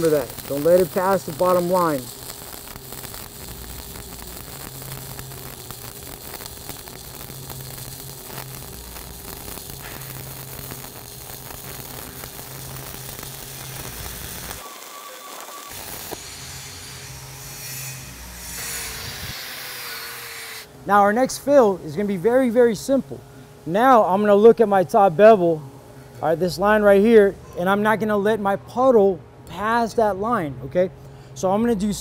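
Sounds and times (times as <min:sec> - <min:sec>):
steady noise: 0:00.0 - 0:19.4
arc welding crackle: 0:00.0 - 0:27.3.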